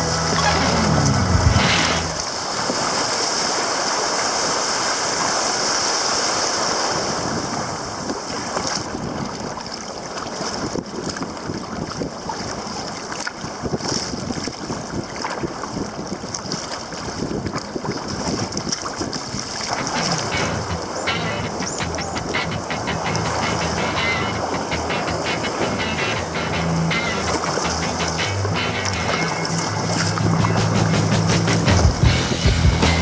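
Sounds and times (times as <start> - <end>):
water splashing against kayak hull: 0.0 - 32.2
wind buffeting microphone: 6.8 - 32.2.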